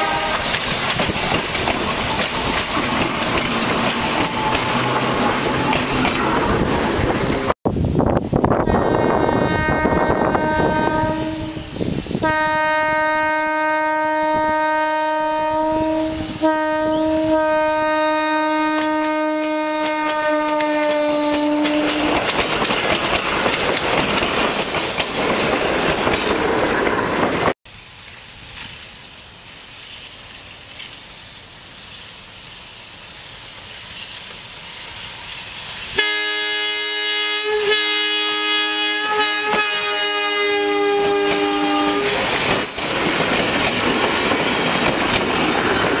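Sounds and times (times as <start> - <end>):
multi-tone train air horn: 0.0 - 0.6, 8.6 - 22.2, 36.0 - 42.4
train wheels on rails: 0.0 - 13.4, 15.3 - 46.0.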